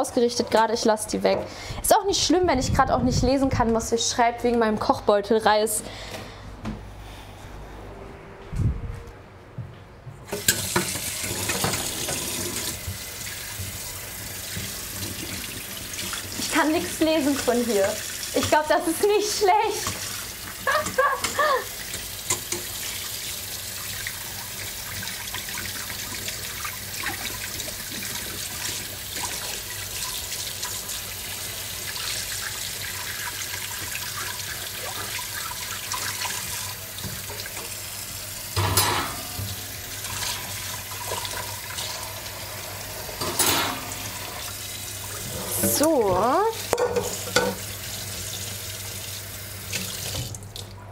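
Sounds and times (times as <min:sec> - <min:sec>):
tap running into a sink: 0:10.3 - 0:13.9, 0:49.7 - 0:50.7
dishes being washed: 0:10.3 - 0:50.9.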